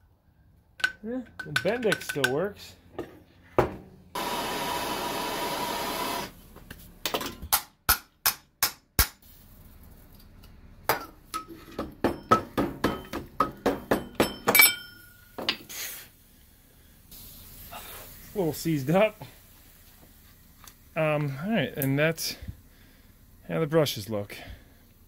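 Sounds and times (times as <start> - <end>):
hammer blows ringing on metal: 12.0 - 15.0.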